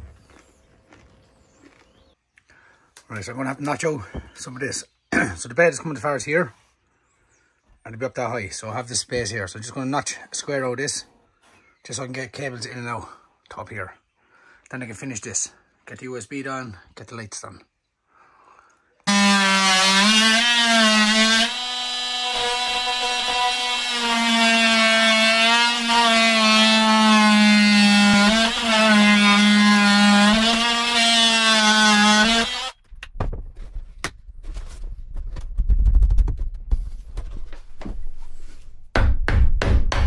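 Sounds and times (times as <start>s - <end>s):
power tool cutting plywood: 19.1s - 32.8s.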